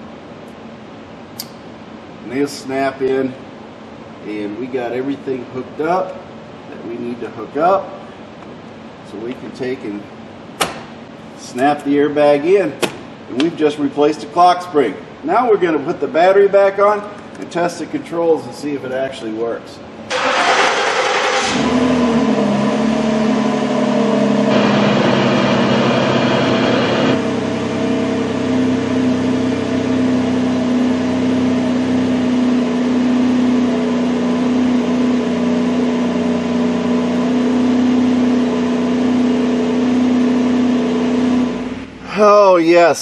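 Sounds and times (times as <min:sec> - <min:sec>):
car engine starting and idling: 0:20.1 - 0:42.3.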